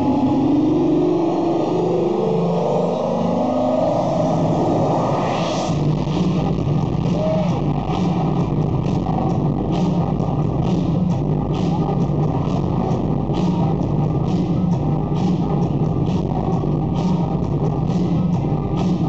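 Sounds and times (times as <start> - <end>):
electronic dance music: 0.0 - 19.0
heavy bass line: 0.0 - 19.0.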